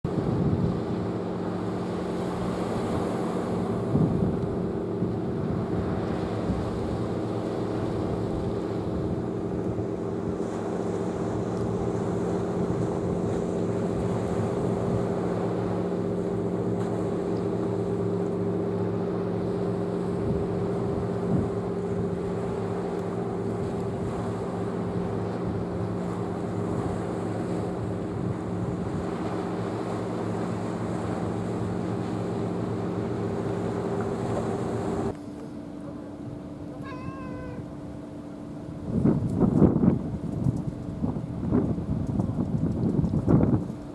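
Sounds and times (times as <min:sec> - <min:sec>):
boat engine droning: 0:00.1 - 0:43.9
quieter single-tone hum: 0:00.1 - 0:43.9
wavering high call: 0:36.7 - 0:37.7.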